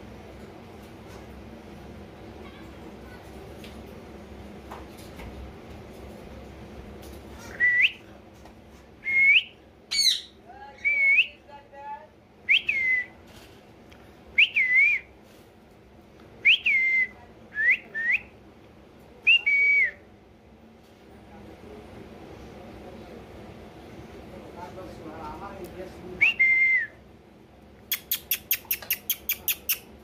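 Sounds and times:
parakeet whistling: 9.9s - 10.3s.

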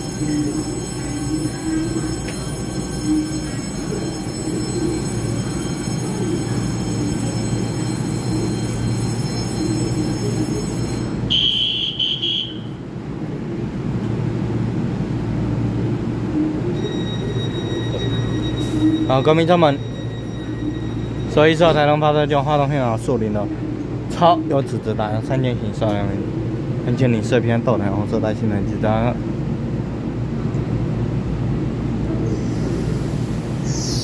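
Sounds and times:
shrill tone: 0.0s - 12.8s
train equipment humming with whine: 0.0s - 34.0s.

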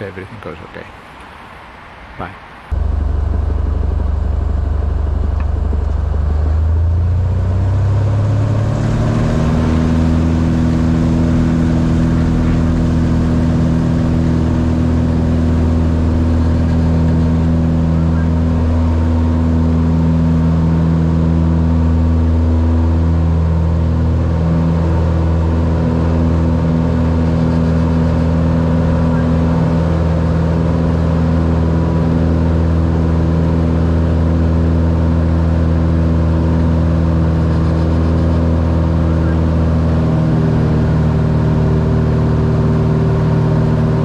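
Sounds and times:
light aircraft engine and propeller: 0.0s - 44.0s.

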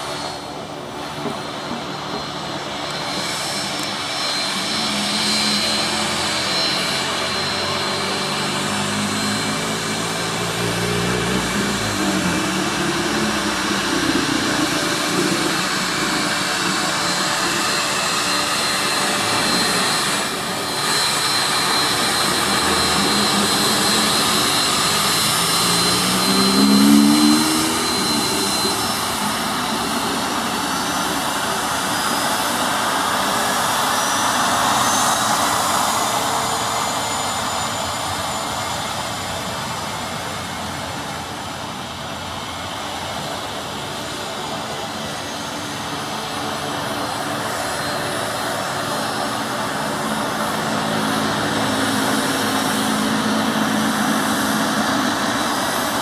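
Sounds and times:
jet engines roaring with whine: 0.0s - 56.0s
faint rising whistle: 1.6s - 39.2s.

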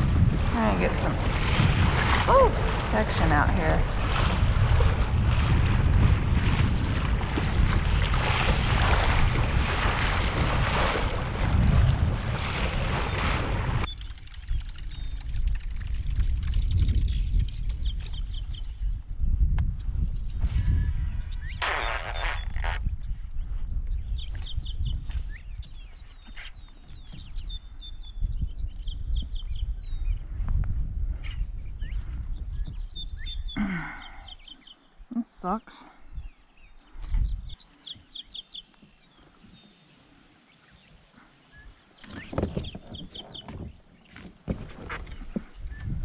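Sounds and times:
water splashing against kayak hull: 0.0s - 16.2s
wind buffeting microphone: 0.0s - 35.0s, 36.0s - 46.0s
small birds chirping: 16.1s - 20.2s, 21.1s - 30.3s, 31.2s - 44.2s.

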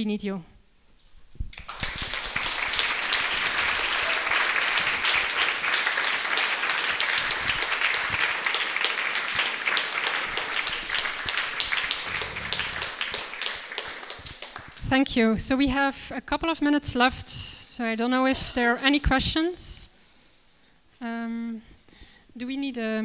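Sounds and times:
audience applauding: 1.6s - 15.0s.

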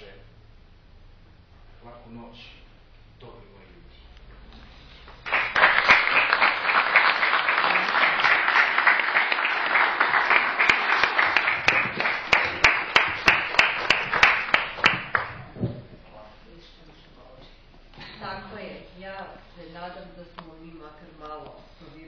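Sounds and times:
audience applauding: 5.2s - 15.6s.

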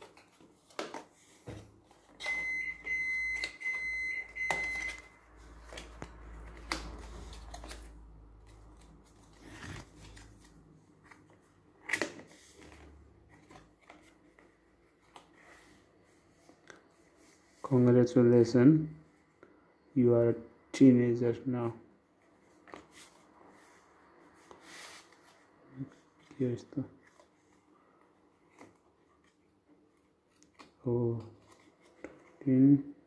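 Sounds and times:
paper rustling: 4.8s - 17.6s, 24.4s - 26.4s.

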